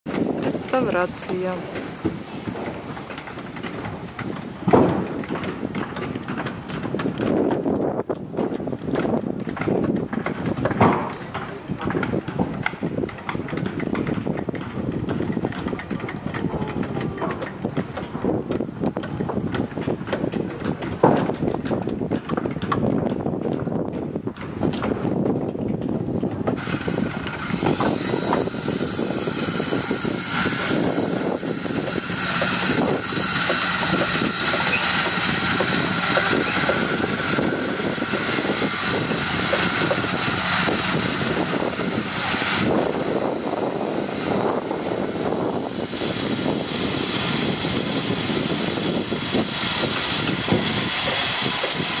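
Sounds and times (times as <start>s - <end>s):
knocks and clatter: 0.1s - 52.0s
power tools and machinery running: 26.5s - 52.0s
high motor whine: 26.6s - 52.0s.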